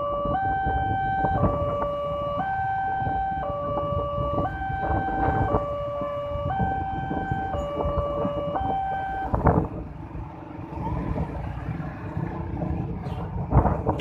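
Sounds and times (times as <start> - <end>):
two-tone level crossing alarm: 0.0 - 9.4
idling motorcycle and car engines: 0.0 - 14.0.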